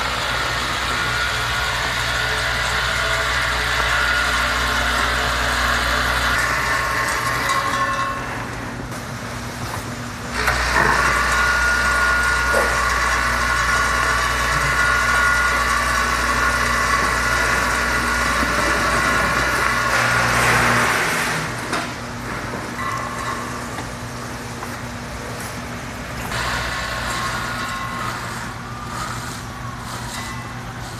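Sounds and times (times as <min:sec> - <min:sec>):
vibratory feeder humming: 0:00.0 - 0:30.9.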